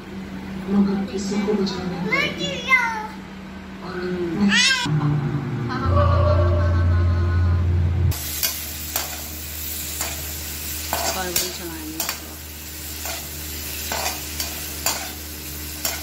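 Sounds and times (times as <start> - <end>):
loud low hum: 3.2 - 10.5
vegetables sizzling in a pan: 8.1 - 16.0.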